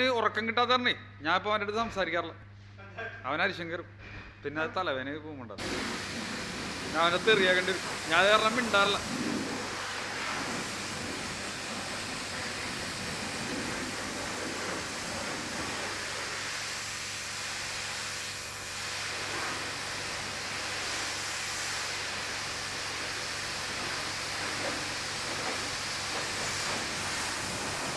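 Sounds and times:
pressure washer spraying water: 5.6 - 27.9.

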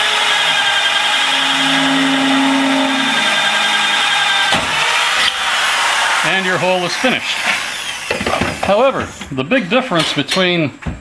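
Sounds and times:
drill hole saw cutting steel: 0.0 - 8.4.

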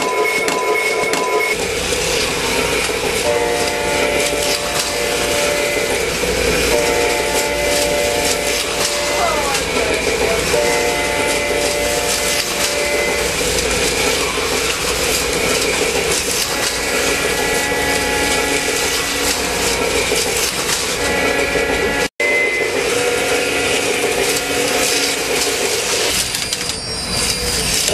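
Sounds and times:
model train running on track: 0.0 - 27.9
diesel horn blasts: 3.2 - 13.6, 16.3 - 25.1.

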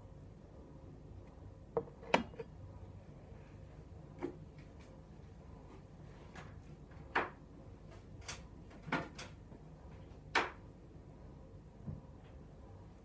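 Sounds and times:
faint low hum: 0.0 - 13.0
kitchen knocks and clicks: 1.8 - 2.5.

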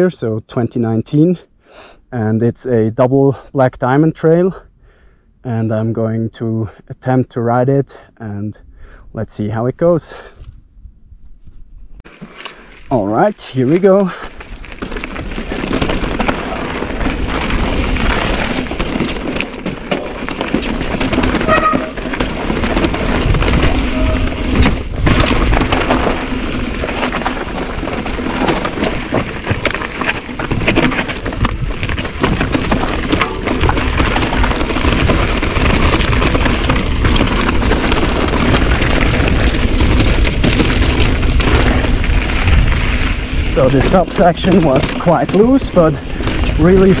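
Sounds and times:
tyres crunching on gravel: 12.0 - 47.0
bike knocking and rattling: 12.1 - 47.0
wind rushing over microphone: 20.6 - 47.0.

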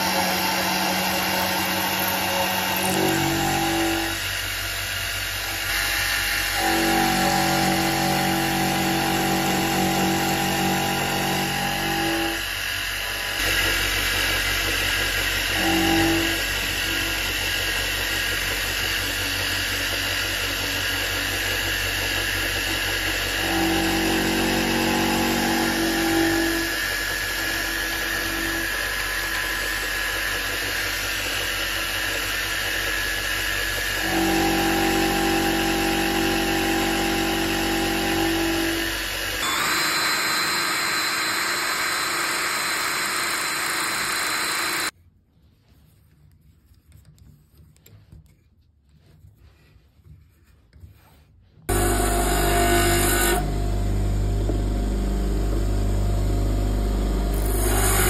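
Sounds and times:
loud steady machine tone: 0.0 - 14.1, 15.4 - 17.4, 23.0 - 44.9, 51.7 - 58.0
milling machine cutting metal: 0.0 - 14.6, 15.4 - 17.4, 19.0 - 44.9, 51.7 - 58.0
handheld drill boring: 0.0 - 45.0, 51.7 - 58.0.

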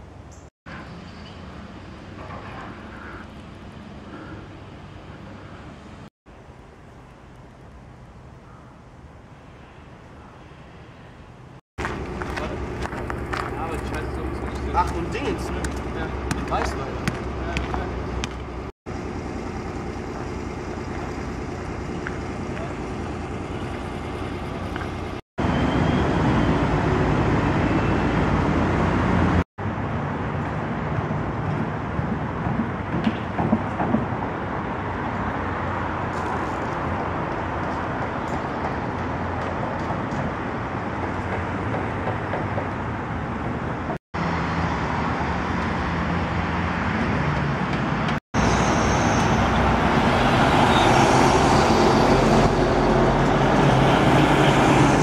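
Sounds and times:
road traffic: 0.0 - 55.0
heavy truck passing: 11.8 - 55.0.

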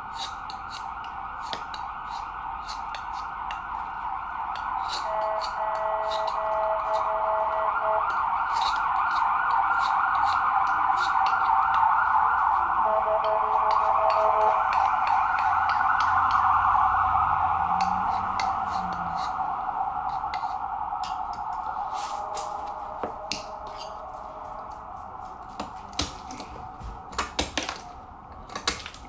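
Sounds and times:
whine-like drone: 0.0 - 28.4
knife chipping ice: 0.1 - 3.6, 8.4 - 11.6, 25.6 - 29.0
rapid beeping tones: 5.1 - 8.1, 12.8 - 17.0.

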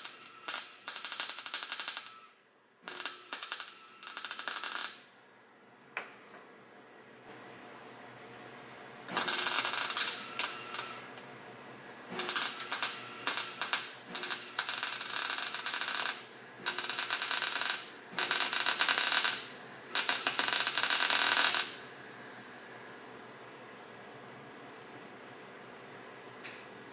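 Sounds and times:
welder crackling: 0.0 - 5.2, 9.1 - 11.2, 11.9 - 22.0.

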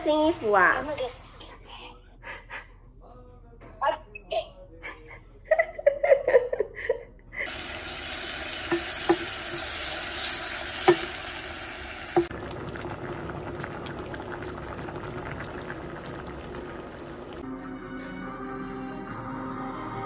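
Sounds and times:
mushrooms sizzling in a saucepan: 7.5 - 17.4
stew bubbling in a pot: 7.5 - 17.4
wooden spatula knocking pan: 8.6 - 9.6, 10.8 - 11.2.

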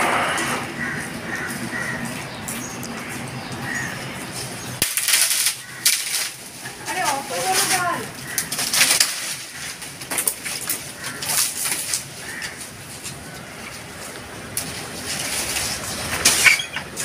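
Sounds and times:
leaves rustling: 0.1 - 17.0
wood cracking: 4.8 - 13.9.

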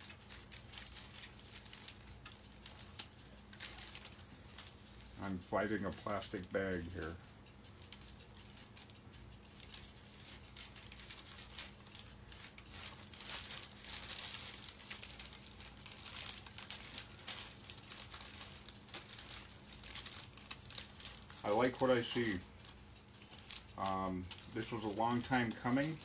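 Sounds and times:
plastic bags crinkling: 0.0 - 7.2, 8.0 - 26.0.

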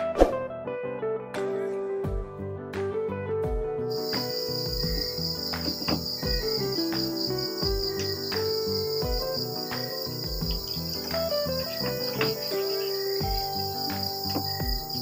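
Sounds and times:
keyboard background music: 0.0 - 15.0
insects chirring: 3.9 - 15.0
short knocks: 4.0 - 15.0.

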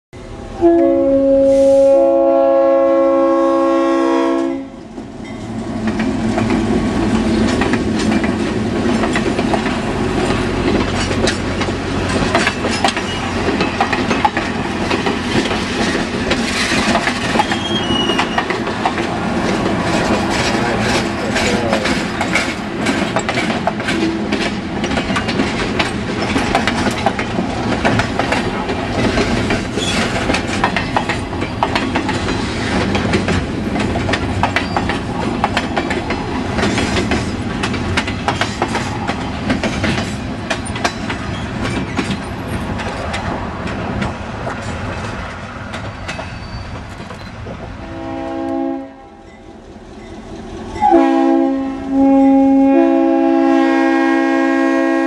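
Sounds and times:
train cars rumbling past: 0.2 - 55.0
train air horn chord: 0.6 - 4.8, 47.8 - 49.2, 50.8 - 55.0
wheels clicking over rail joints: 4.8 - 47.8.

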